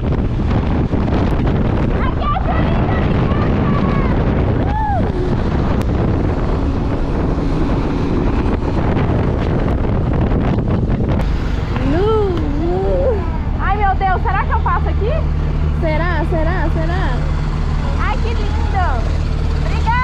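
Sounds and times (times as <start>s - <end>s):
motorcycle engine: 0.0s - 20.0s
road noise: 0.0s - 20.0s
wind rush on microphone: 0.0s - 20.0s
voice-like tone: 11.8s - 13.7s.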